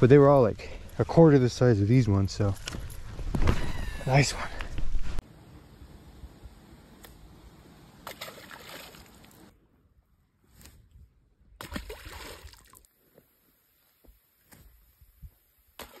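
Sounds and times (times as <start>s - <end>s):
water sloshing: 8.0s - 9.5s.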